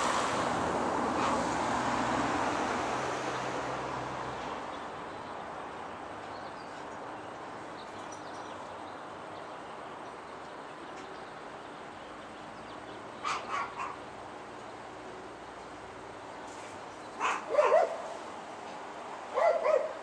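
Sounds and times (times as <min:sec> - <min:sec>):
outdoor background noise: 0:00.0 - 0:20.0
dog barking: 0:01.2 - 0:01.4, 0:13.2 - 0:14.0, 0:17.2 - 0:18.2, 0:19.3 - 0:20.0.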